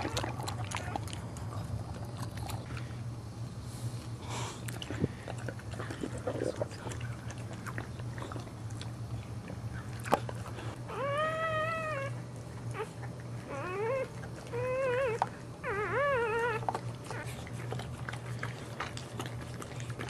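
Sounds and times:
dog whimpering: 0.0 - 1.1, 10.9 - 17.8
low steady hum: 0.0 - 20.0.

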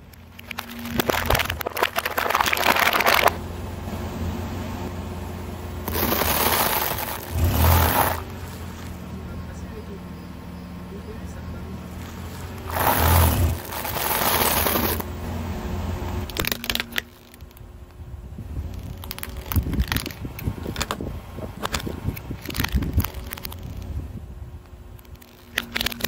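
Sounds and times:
sharp cracks and snaps: 0.0 - 3.4, 16.2 - 18.0, 18.6 - 24.0, 24.6 - 26.0
tyre crunching dry noodles: 0.4 - 3.4, 5.8 - 9.0, 11.9 - 15.1.

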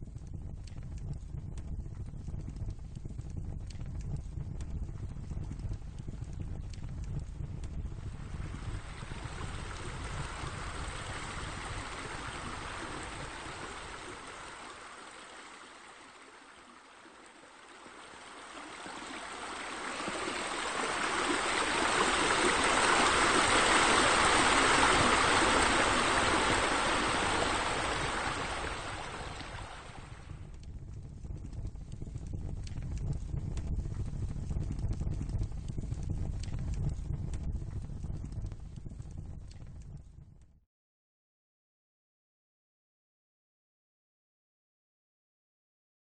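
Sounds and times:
low rumble: 0.0 - 15.0, 18.4 - 40.6
running water splashing: 8.2 - 30.4.

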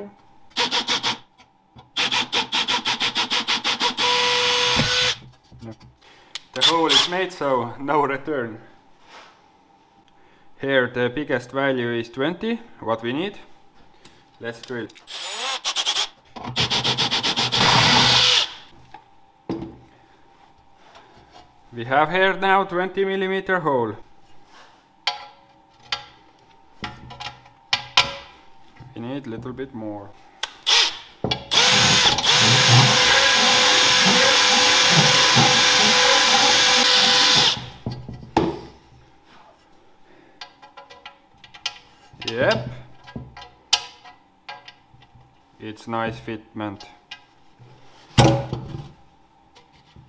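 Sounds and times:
power drill cutting metal: 0.6 - 1.2, 2.0 - 5.2, 15.1 - 18.6, 30.7 - 37.7.

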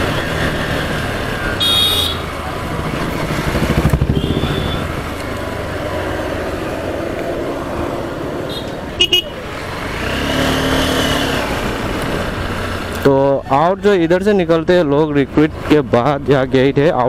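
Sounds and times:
wind and road noise: 0.0 - 17.0
horn beeps: 1.6 - 2.3, 4.1 - 5.0.

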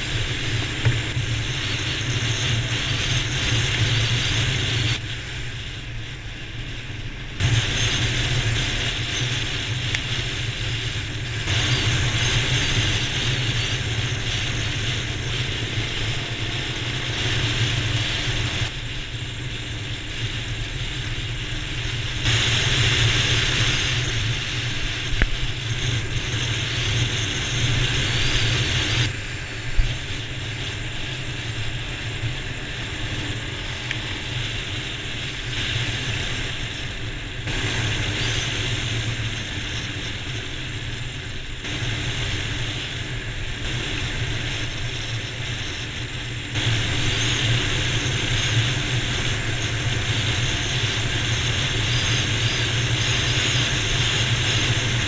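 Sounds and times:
motorcycle engine hum: 0.0 - 55.0
wind and tyre hiss: 0.0 - 55.0.

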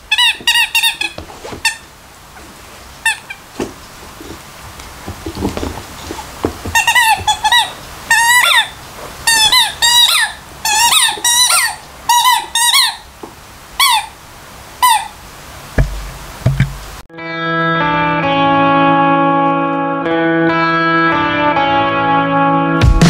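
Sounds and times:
rubber squeaky toy squeaking: 0.0 - 1.9, 3.0 - 3.5, 6.1 - 13.1, 13.8 - 14.2, 14.8 - 15.2
dull thud: 15.8 - 17.0.

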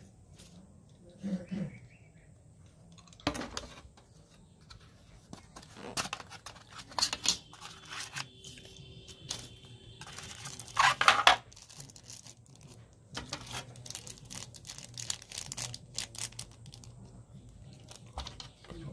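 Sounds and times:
plastic bags crinkling: 5.6 - 17.0
plastic bag tearing: 10.0 - 16.9.

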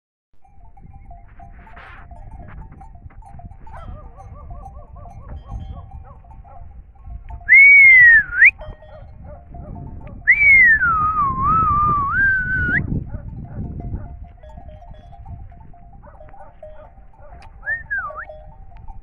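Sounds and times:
person whistling: 7.5 - 8.6, 10.3 - 12.9, 17.6 - 18.3.

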